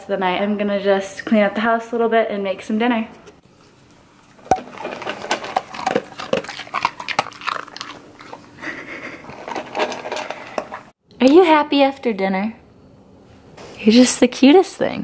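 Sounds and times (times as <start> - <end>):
dog crunching dry kibble: 4.4 - 10.9.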